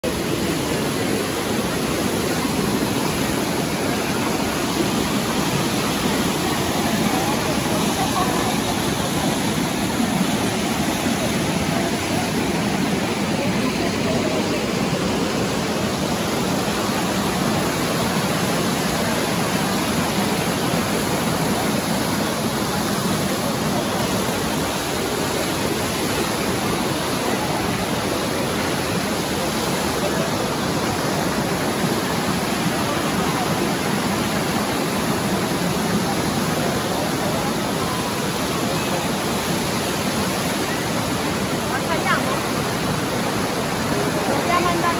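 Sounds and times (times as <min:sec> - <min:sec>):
water pouring down cascades: 0:00.0 - 0:44.9
bathers' voices: 0:00.8 - 0:17.8.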